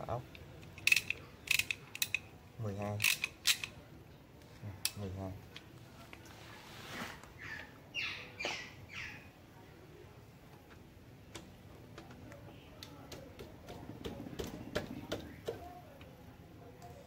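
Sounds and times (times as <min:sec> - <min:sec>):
sharp metal clicks of wrench: 0:00.6 - 0:02.3, 0:03.0 - 0:03.8
wrench squeaking: 0:00.8 - 0:02.3, 0:03.0 - 0:03.7.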